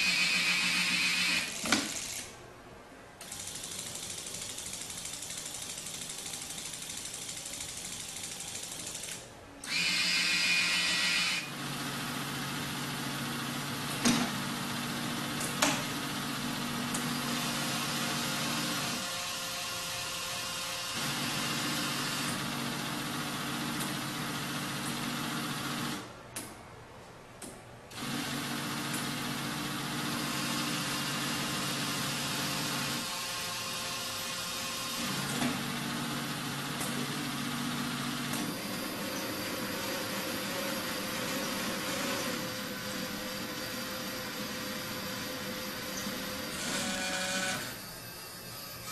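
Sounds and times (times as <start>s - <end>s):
small electric motors humming: 8.8s - 13.6s, 27.9s - 48.9s.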